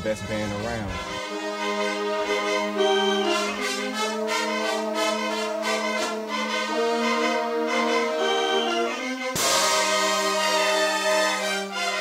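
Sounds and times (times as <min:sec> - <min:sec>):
brass band playing held chords: 0:00.0 - 0:12.0
sharp drum hits: 0:09.4 - 0:10.7.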